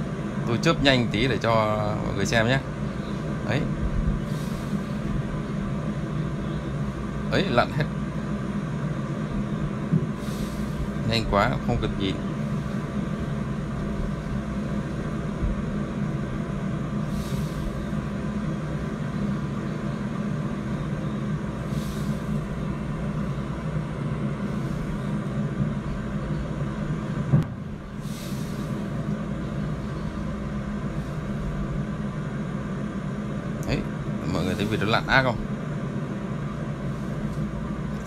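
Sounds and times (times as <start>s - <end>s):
low machine hum: 0.0s - 38.0s
short hissy bursts: 17.0s - 18.0s, 21.6s - 22.5s, 28.0s - 29.0s.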